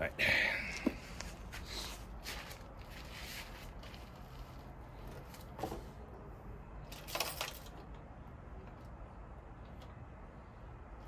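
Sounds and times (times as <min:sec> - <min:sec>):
metal clinks and rattles: 0:06.9 - 0:07.9.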